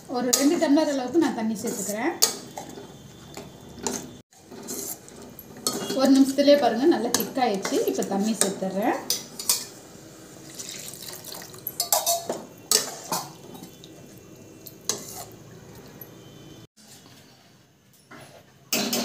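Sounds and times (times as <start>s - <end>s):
liquid sloshing: 10.4s - 12.0s
metal spatula clinking on pan: 11.8s - 13.4s.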